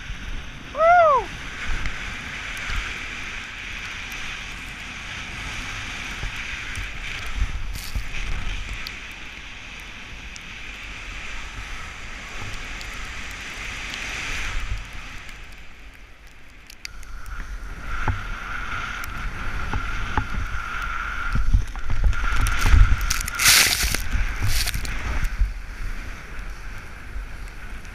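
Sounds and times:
wind rumbling on microphone: 0:00.0 - 0:27.9
snowboard hissing through powder snow: 0:05.2 - 0:08.7, 0:22.2 - 0:26.3.

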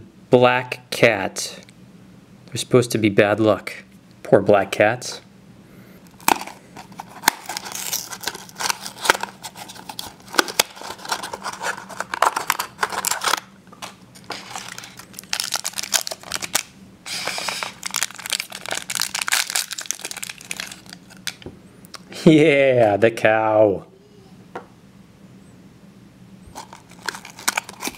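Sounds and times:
foil pouch crinkling and tearing: 0:06.1 - 0:21.4, 0:26.5 - 0:27.9.

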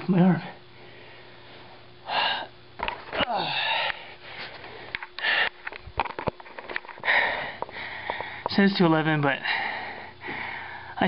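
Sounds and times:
man breathing hard: 0:00.7 - 0:02.6, 0:03.2 - 0:05.8, 0:06.9 - 0:08.5, 0:09.4 - 0:11.0.

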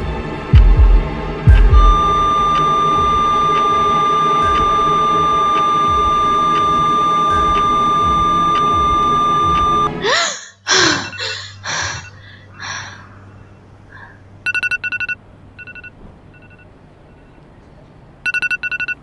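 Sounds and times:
quick electronic beeps: 0:01.5 - 0:09.9, 0:18.3 - 0:19.0
high electronic tone: 0:01.5 - 0:10.0
woman gasping and breathing: 0:10.0 - 0:13.3.

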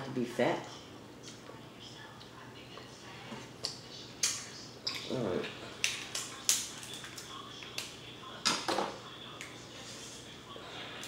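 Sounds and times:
crab shells cracking: 0:05.8 - 0:07.9.

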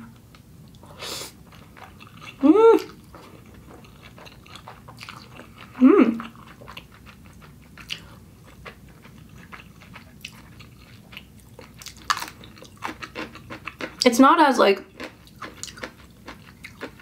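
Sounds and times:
chewing noodles: 0:01.4 - 0:14.0, 0:14.9 - 0:17.0.

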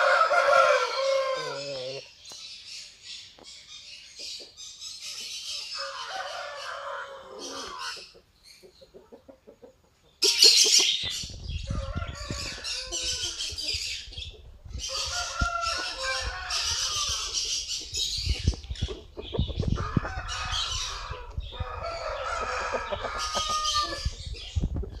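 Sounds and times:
chickens clucking: 0:00.0 - 0:02.1, 0:03.4 - 0:25.0
rooster: 0:00.0 - 0:02.1, 0:05.5 - 0:08.2, 0:10.2 - 0:14.0, 0:14.8 - 0:25.0.

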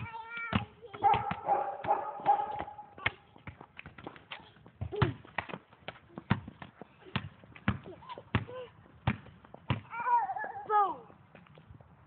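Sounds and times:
child squealing and babbling: 0:09.9 - 0:11.0.

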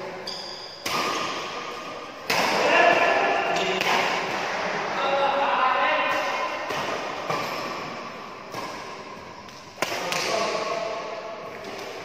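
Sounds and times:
rackets striking shuttlecock: 0:00.3 - 0:04.6, 0:06.0 - 0:10.8.

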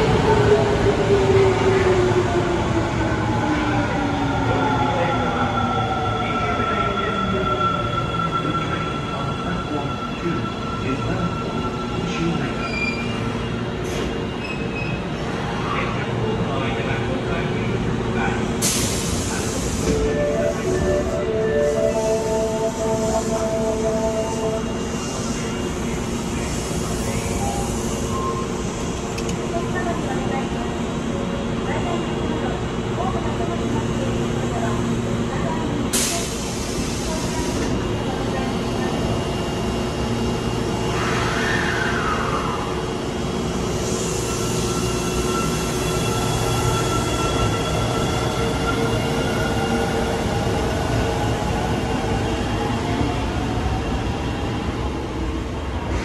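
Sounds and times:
subway train humming: 0:00.0 - 0:56.0
station ambience: 0:15.2 - 0:56.0.

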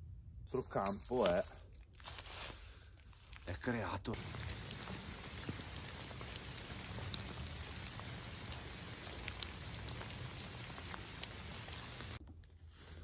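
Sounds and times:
steady rain: 0:04.2 - 0:12.2.

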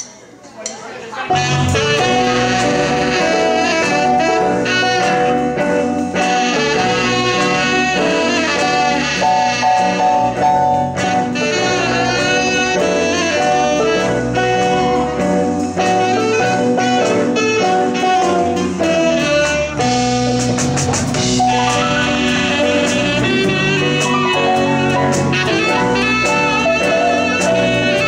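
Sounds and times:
drum kit: 0:01.3 - 0:28.0
electric guitar: 0:01.3 - 0:28.0
saxophone: 0:01.3 - 0:28.0
electric bass: 0:01.4 - 0:28.0.

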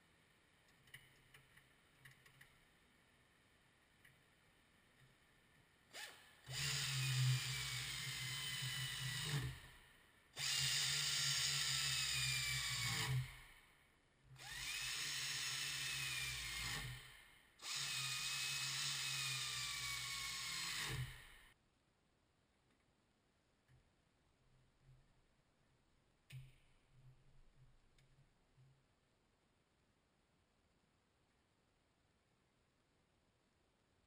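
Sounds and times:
pneumatic air ratchet whining: 0:06.0 - 0:09.8, 0:10.4 - 0:13.6, 0:14.4 - 0:21.6.

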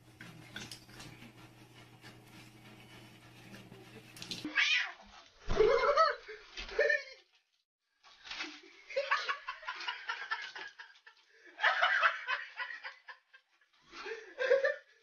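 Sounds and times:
person laughing: 0:05.5 - 0:07.2.

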